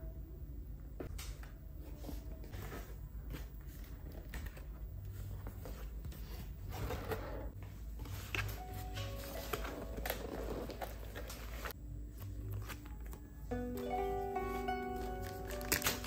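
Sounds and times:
cardboard rustling and scraping: 0:02.4 - 0:13.1.

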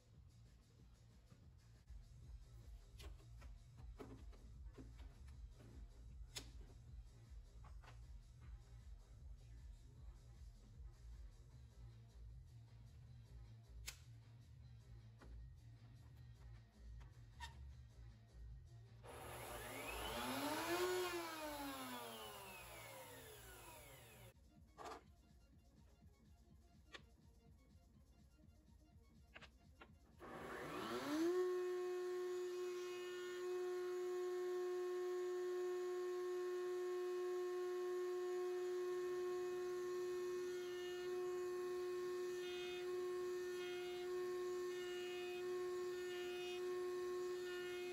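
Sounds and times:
router motor whining: 0:19.1 - 0:24.3, 0:30.2 - 0:47.9.

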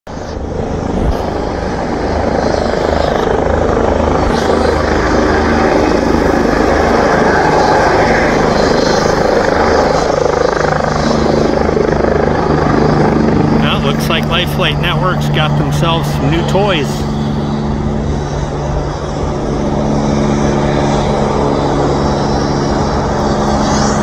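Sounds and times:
helicopter rotor and turbine: 0:00.1 - 0:24.0.

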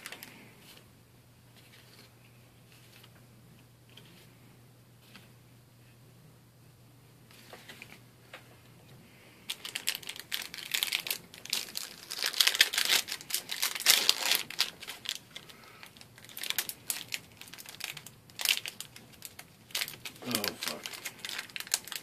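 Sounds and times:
foil wrapper crinkling and tearing: 0:09.5 - 0:22.0.

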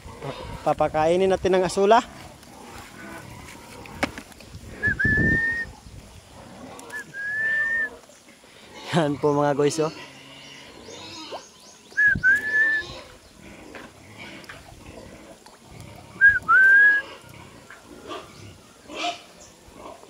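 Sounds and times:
loud two-note whistles: 0:16.2 - 0:17.0.

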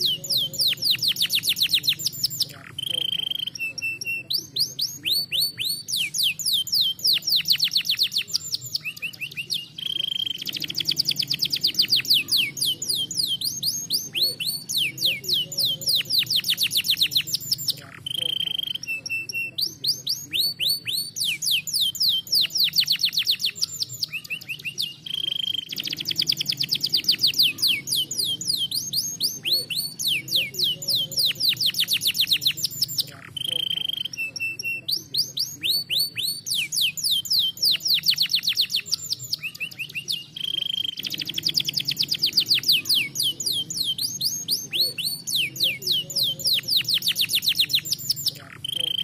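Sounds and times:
canary singing trills: 0:00.0 - 0:49.0.

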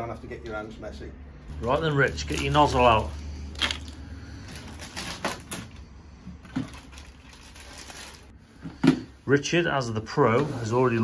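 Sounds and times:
plastic packaging crinkling: 0:01.6 - 0:05.8, 0:06.4 - 0:08.3.

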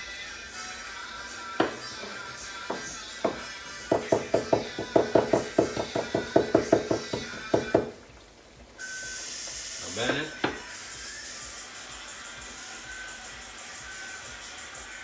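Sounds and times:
knife chopping on wooden board: 0:02.7 - 0:08.0
faint steady hiss: 0:05.2 - 0:15.0.

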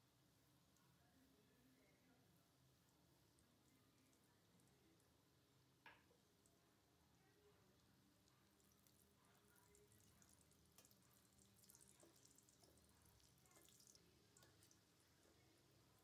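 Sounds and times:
food frying in hot oil: 0:03.7 - 0:16.0.

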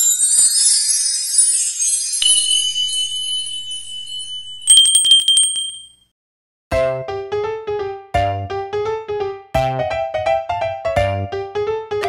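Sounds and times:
high sparkling chimes: 0:00.0 - 0:06.0
bright ding ringing: 0:02.2 - 0:06.1.

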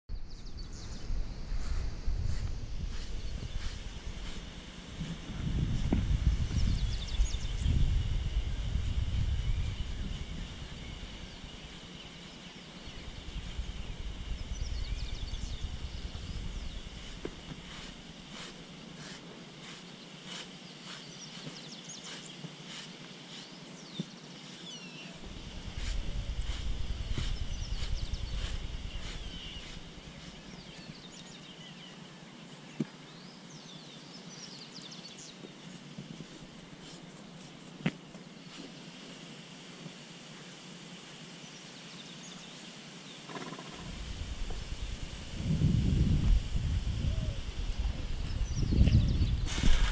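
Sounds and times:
birds chirping and singing: 0:00.1 - 0:17.9, 0:19.7 - 0:35.8, 0:46.8 - 0:49.9
steady high hum: 0:00.1 - 0:49.9.

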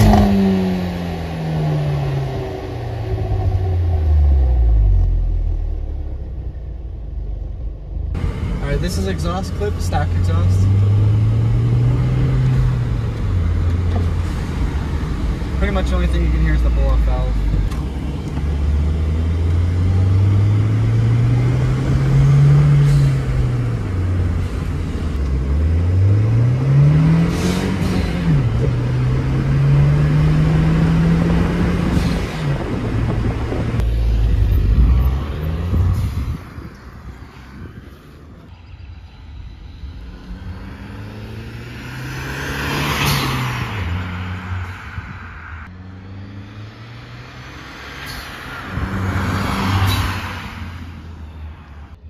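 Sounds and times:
car engine accelerating: 0:00.0 - 0:45.0
car passing by: 0:33.5 - 0:52.0.

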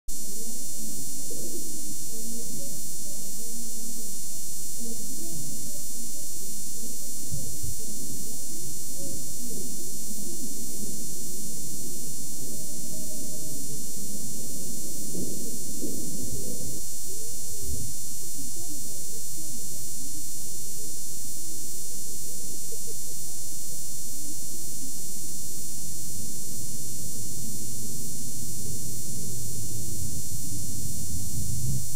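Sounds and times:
tape buzz and hiss: 0:00.1 - 0:31.9
muffled voices: 0:00.3 - 0:19.6, 0:22.4 - 0:23.5.

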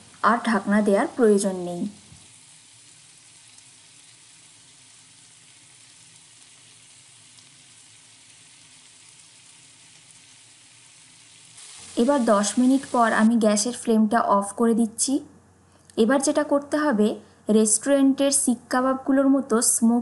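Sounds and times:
kebabs sizzling in oil: 0:00.0 - 0:14.0.

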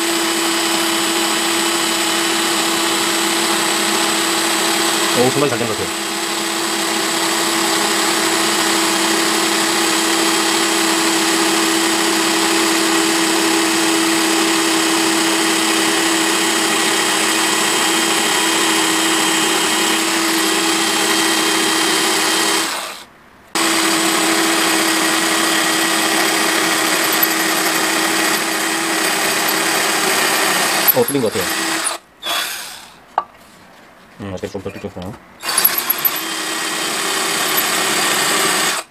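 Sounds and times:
electric drill grinding through tile: 0:00.0 - 0:33.0, 0:35.4 - 0:38.9.

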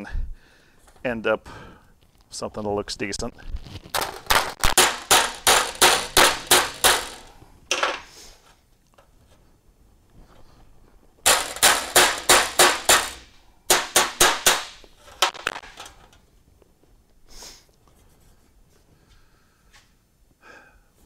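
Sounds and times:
hammer striking sheet metal: 0:04.2 - 0:07.8, 0:11.3 - 0:15.6.

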